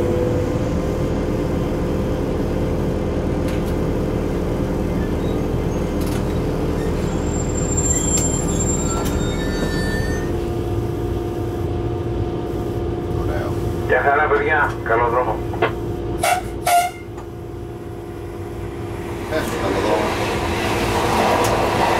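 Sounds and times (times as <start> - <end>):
locomotive rumble: 0.0 - 21.9.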